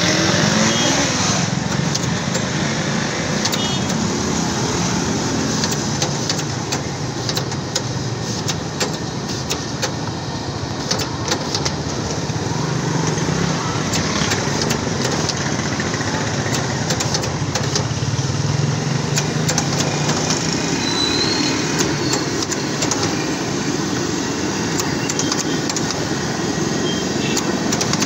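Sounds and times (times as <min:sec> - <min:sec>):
engine-like drone: 0:00.0 - 0:28.0.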